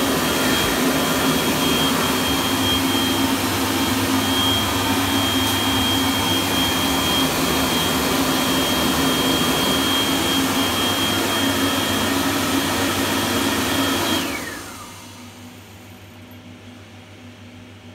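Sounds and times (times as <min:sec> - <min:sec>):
hand dryer blowing: 0:00.0 - 0:15.8.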